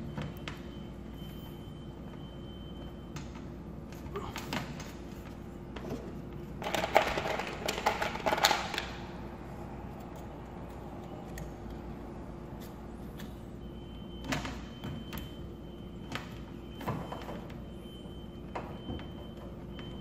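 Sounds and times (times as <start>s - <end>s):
steady low hum: 0.0s - 20.0s
electrical wires rustling and clicking: 2.8s - 9.1s.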